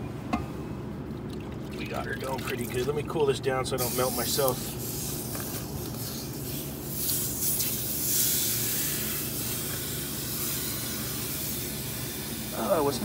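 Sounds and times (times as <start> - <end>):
low steady hum: 0.0 - 13.0
hissing at a brazed pipe joint: 3.8 - 13.0.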